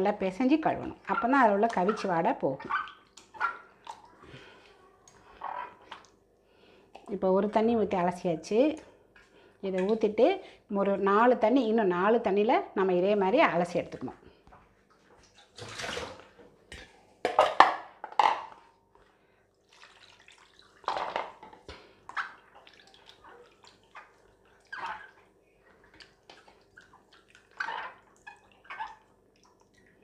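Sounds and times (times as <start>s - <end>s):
water splashing in a metal bowl: 15.2s - 16.9s, 19.6s - 30.0s.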